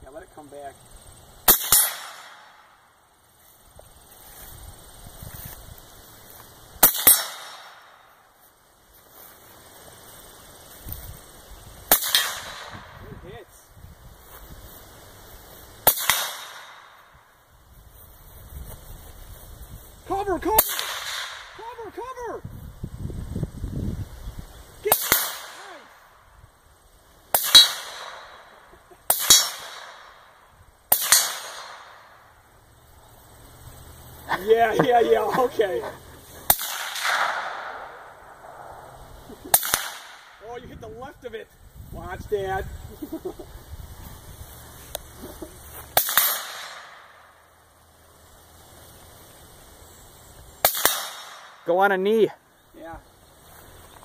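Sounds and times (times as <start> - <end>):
suppressed rifle shots: 1.4 - 2.6, 6.8 - 8.0, 11.9 - 12.9, 15.8 - 16.9, 20.6 - 21.5, 27.3 - 28.5, 29.1 - 30.2, 30.9 - 32.0, 36.5 - 40.4, 46.0 - 47.1, 50.6 - 51.6
gunshots: 1.4 - 2.7, 6.8 - 8.0, 11.9 - 12.9, 15.8 - 16.9, 20.6 - 21.6, 24.9 - 25.8, 27.4 - 28.5, 29.1 - 30.2, 30.9 - 32.0, 36.5 - 38.9, 39.5 - 40.4, 46.0 - 47.1, 50.6 - 51.6.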